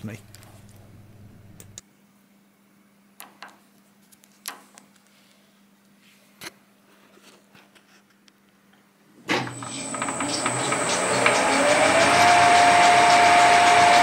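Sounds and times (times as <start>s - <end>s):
faint hum: 0.0s - 4.1s.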